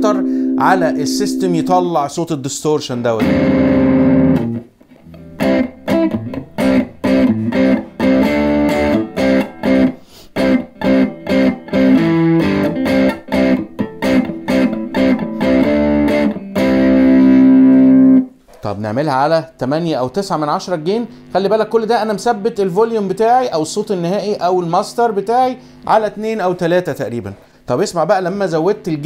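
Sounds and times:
overdriven electric guitar riff: 0:00.0 - 0:02.0, 0:03.1 - 0:18.4, 0:24.2 - 0:26.0.

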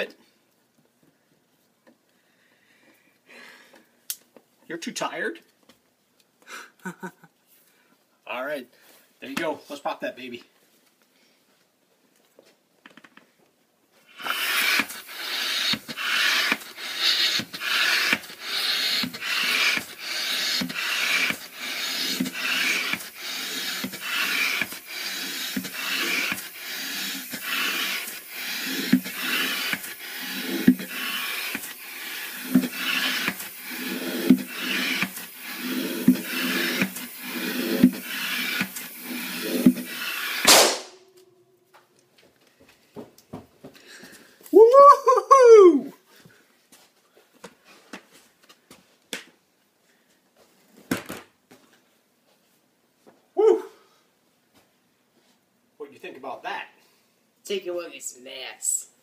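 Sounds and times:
air pump hissing strokes: 0:14.1 - 0:40.8.

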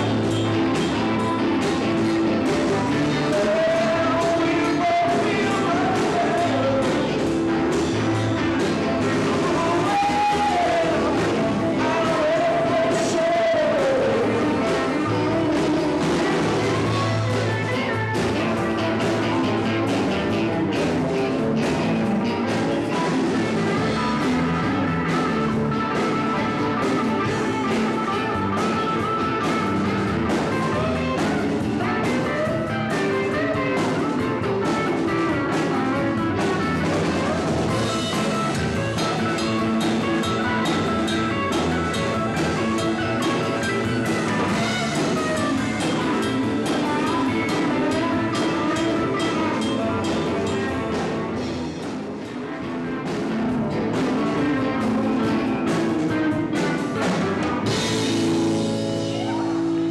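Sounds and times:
rock band playing live: 0:00.0 - 0:59.9
person singing: 0:02.4 - 0:20.4, 0:57.7 - 0:59.9.

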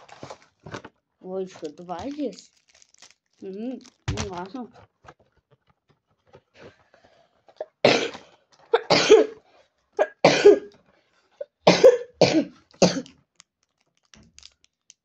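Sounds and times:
boy coughing: 0:07.6 - 0:09.4, 0:10.0 - 0:10.7, 0:11.7 - 0:13.0.

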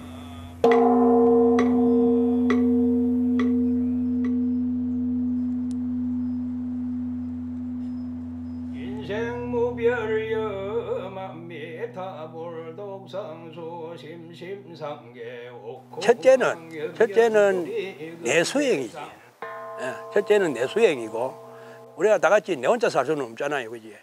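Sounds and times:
steady ringing tone: 0:00.0 - 0:17.0, 0:19.4 - 0:23.0
man chanting: 0:08.8 - 0:18.9.

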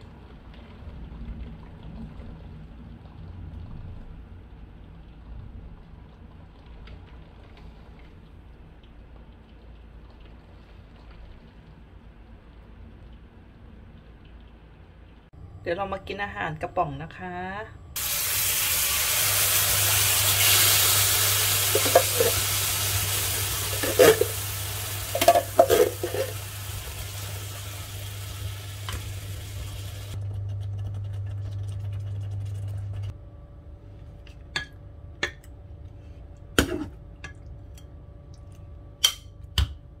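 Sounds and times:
food sizzling in a frying pan: 0:18.0 - 0:30.2
utensil stirring and knocking pan: 0:21.6 - 0:22.5, 0:23.6 - 0:24.4, 0:25.1 - 0:26.4
steady low hum: 0:23.1 - 0:40.0.

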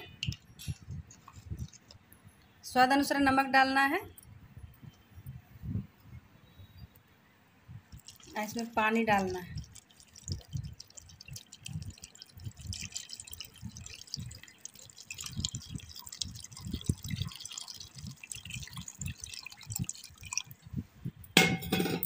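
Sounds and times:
water pouring over peas: 0:07.8 - 0:20.8.

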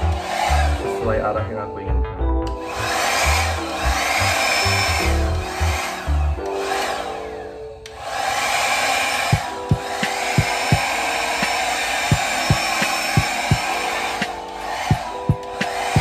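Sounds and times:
hair dryer blowing: 0:00.0 - 0:01.2, 0:02.5 - 0:16.0
background music with beat: 0:00.0 - 0:07.1, 0:09.2 - 0:16.0.

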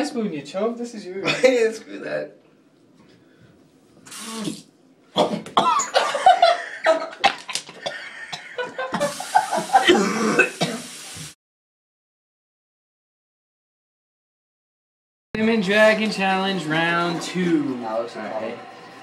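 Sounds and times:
person coughing hard: 0:05.2 - 0:09.1, 0:09.8 - 0:10.9.

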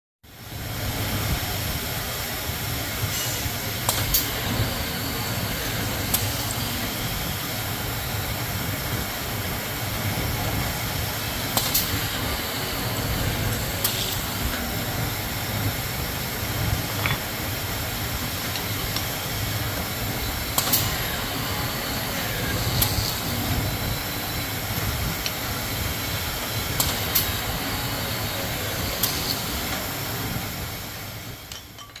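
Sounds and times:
short pneumatic hiss: 0:03.1 - 0:04.3
drill motor running: 0:19.5 - 0:25.9.

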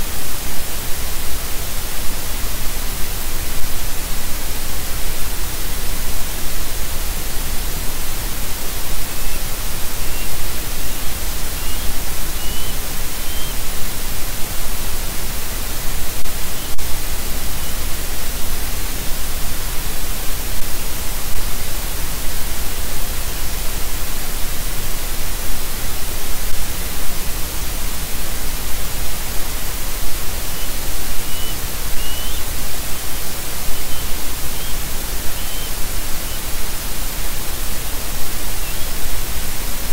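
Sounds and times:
static hiss: 0:00.0 - 0:39.9
faint high chirps: 0:09.0 - 0:13.8, 0:30.4 - 0:33.0, 0:33.6 - 0:36.5, 0:38.4 - 0:39.0.

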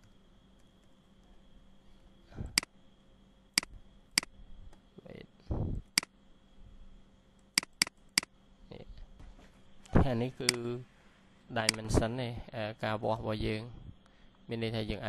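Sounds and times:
mouse button clicks: 0:07.6 - 0:08.3.

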